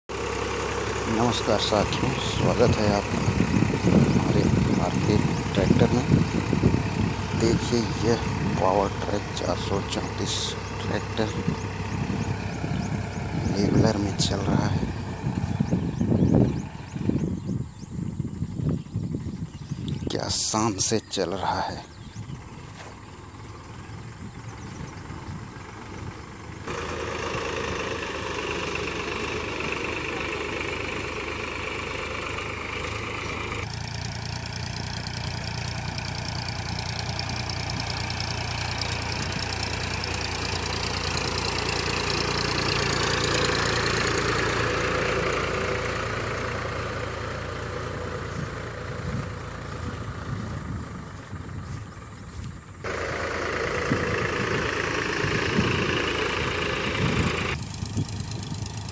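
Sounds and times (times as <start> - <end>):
tractor diesel engine under load: 0.0 - 58.9.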